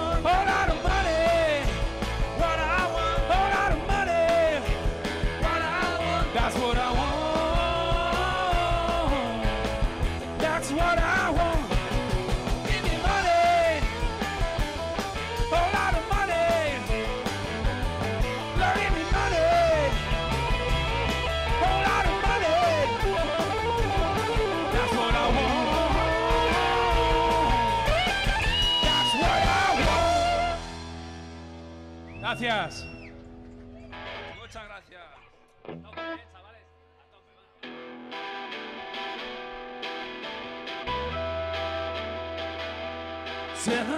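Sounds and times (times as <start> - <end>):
rock band playing: 0.0 - 34.8, 37.6 - 43.9
lead electric guitar bent notes: 0.2 - 32.0.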